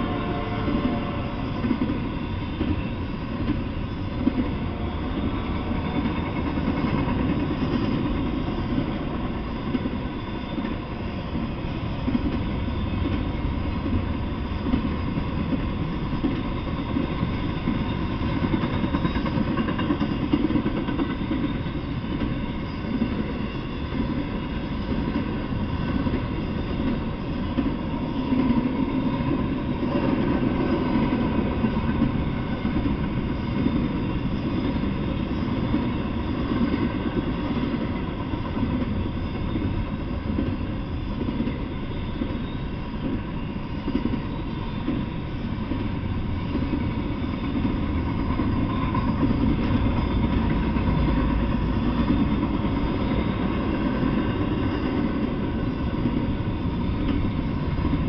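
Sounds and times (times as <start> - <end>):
freight train rumbling on rails: 0.0 - 58.0.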